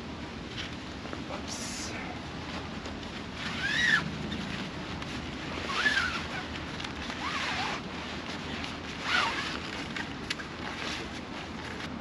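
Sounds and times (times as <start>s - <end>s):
frame tubes squeaking: 5.5s - 7.8s, 8.4s - 11.0s.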